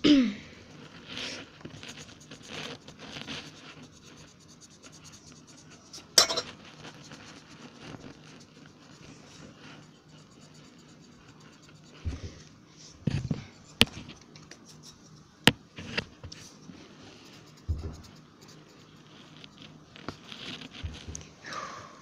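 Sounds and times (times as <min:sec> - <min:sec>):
pen scratching on paper: 0:00.8 - 0:12.1, 0:17.2 - 0:21.2.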